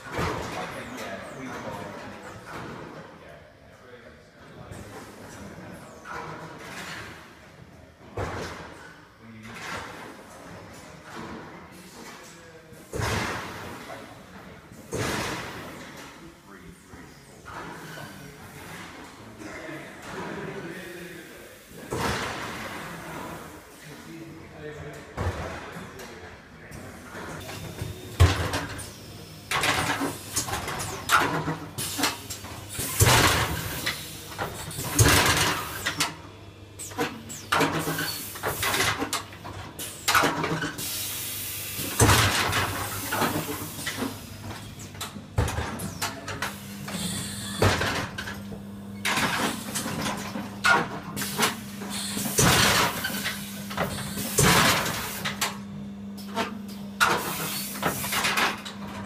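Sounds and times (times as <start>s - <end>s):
mechanical clunks and knocks: 14.9s - 16.1s, 41.8s - 59.0s.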